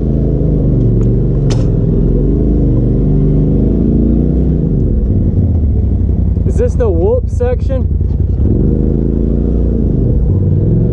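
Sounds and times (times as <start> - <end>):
engine running at low throttle: 0.0 - 10.9
sharp click: 0.9 - 1.8.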